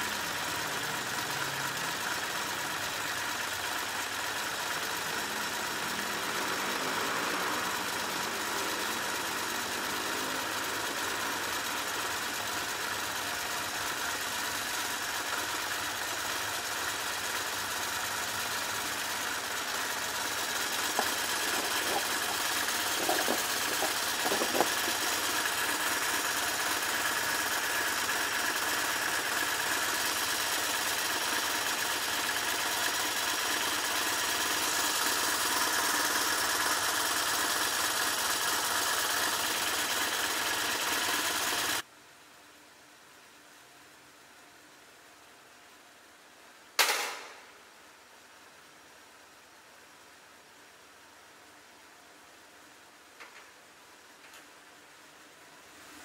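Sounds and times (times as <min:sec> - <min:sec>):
motorcycle engine idling: 0:00.0 - 0:41.8.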